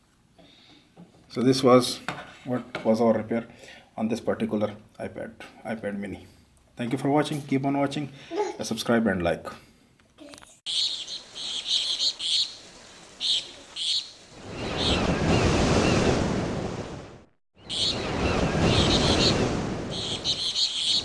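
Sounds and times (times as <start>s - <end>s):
small birds chirping: 10.2s - 16.0s, 17.6s - 21.0s
ocean waves breaking: 10.8s - 21.0s.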